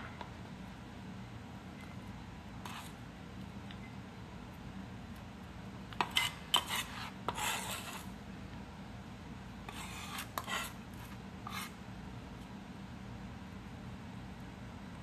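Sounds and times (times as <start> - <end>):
knife scraping a cutting board: 2.6 - 3.0, 5.9 - 8.1, 9.7 - 11.8.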